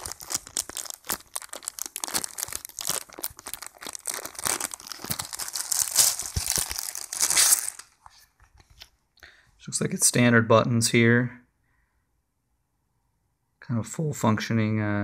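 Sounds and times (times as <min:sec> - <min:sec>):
plastic bag crinkling: 0:00.0 - 0:08.9.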